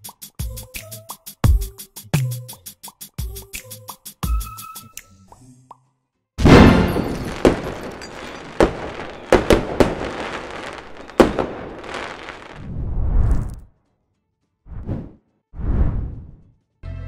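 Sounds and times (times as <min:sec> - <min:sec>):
fireworks bursting: 0:06.4 - 0:12.6
sharp bangs and crackles: 0:06.4 - 0:12.6
rumble: 0:12.6 - 0:13.7, 0:14.7 - 0:16.5.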